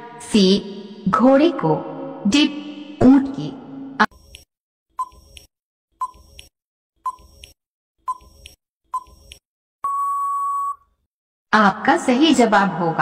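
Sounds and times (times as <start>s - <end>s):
timer ticks: 4.1s - 10.0s
long steady beep: 9.8s - 10.9s.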